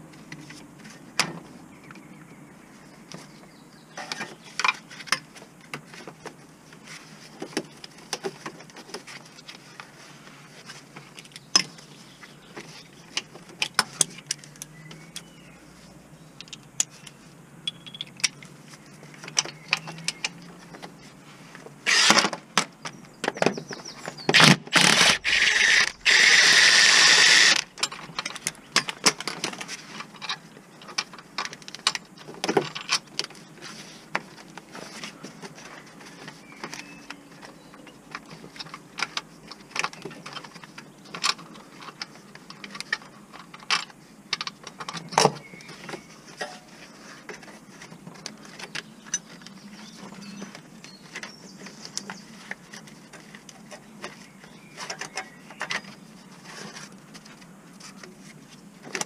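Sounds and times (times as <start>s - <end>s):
metal tools clicking and knocking: 17.6s - 18.5s
power tool running in spurts: 24.7s - 27.6s.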